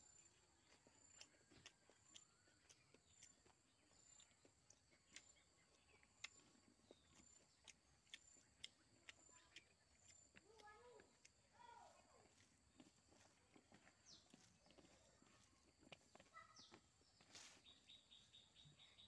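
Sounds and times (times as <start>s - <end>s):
insect chirping: 17.6s - 19.0s.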